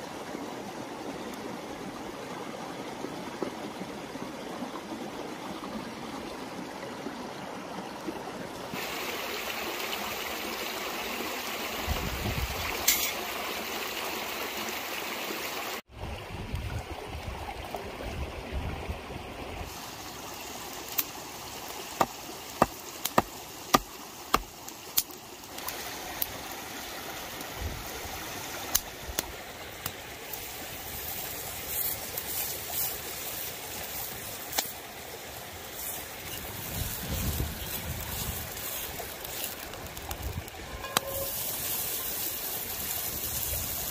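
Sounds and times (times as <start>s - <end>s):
stream rushing: 0.0s - 43.9s
wood fire crackling: 35.7s - 43.9s.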